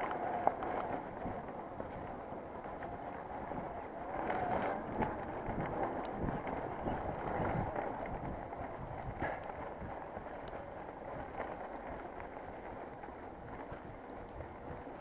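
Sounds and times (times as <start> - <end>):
bike tyre noise: 0.0 - 15.0
wind on microphone: 0.0 - 15.0.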